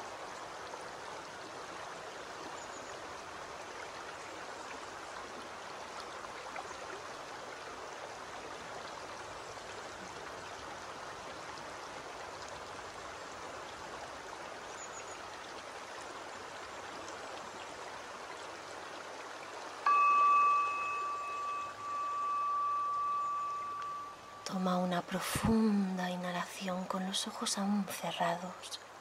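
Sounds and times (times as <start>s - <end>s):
stream flowing over stones: 0.0s - 29.0s.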